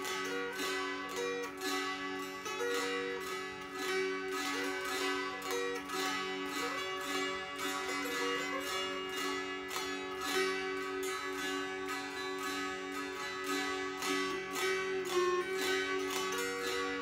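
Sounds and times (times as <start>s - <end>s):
strummed zither melody with drone: 0.0s - 17.0s.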